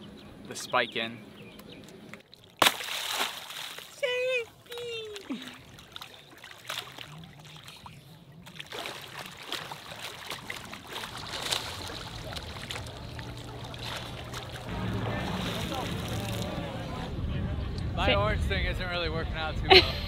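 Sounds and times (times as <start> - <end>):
water sloshing and splashing: 1.8 - 16.8.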